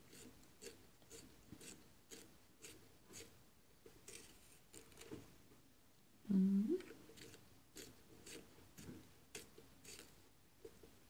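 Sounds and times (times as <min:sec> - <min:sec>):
pencil sharpener scraping: 0:00.0 - 0:03.4, 0:04.0 - 0:05.1, 0:07.1 - 0:08.5, 0:09.3 - 0:10.2.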